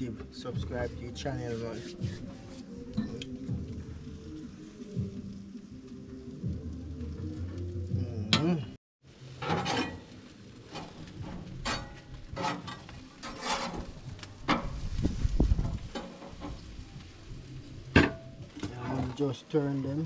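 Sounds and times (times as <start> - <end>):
chicken sizzling on grill: 0.0 - 20.0
music: 0.0 - 20.0
metal spatula scraping grill grate: 0.1 - 3.6, 9.2 - 20.0.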